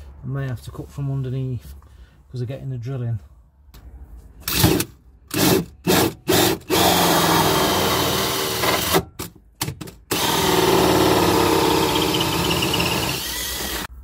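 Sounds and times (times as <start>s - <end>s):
power drill cutting: 5.4s - 9.0s, 10.1s - 13.9s.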